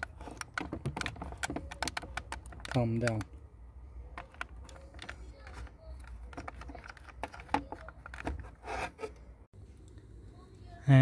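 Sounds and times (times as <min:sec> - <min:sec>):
plastic clicks and taps: 0:00.0 - 0:03.4, 0:04.1 - 0:08.5.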